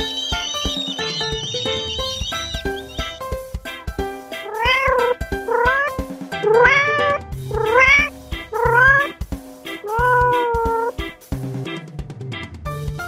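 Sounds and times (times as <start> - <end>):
background music with beat: 0.0 - 13.0
cat meowing: 4.4 - 9.2, 9.8 - 11.0.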